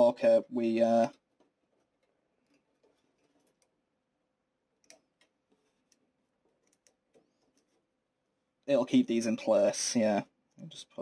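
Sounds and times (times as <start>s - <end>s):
faint clicks of plastic parts: 1.0s - 4.0s, 4.6s - 8.7s.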